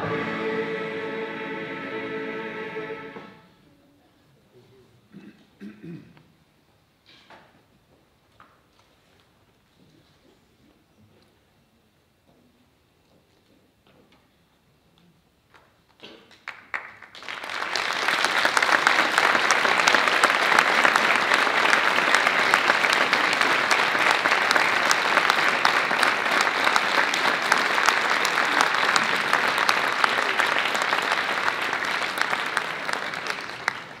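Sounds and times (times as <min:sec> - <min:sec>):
audience applauding: 0:16.4 - 0:34.0.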